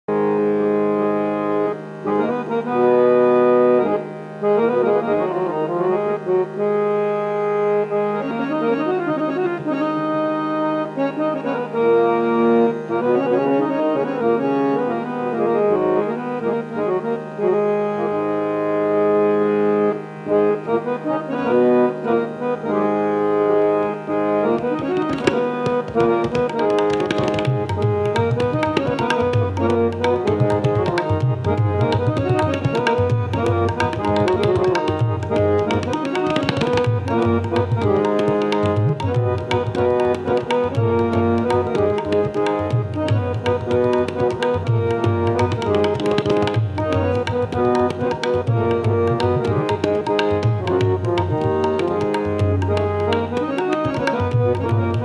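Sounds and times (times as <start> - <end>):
harmonium melodic runs: 0.1 - 55.0
tabla strokes: 25.0 - 55.0.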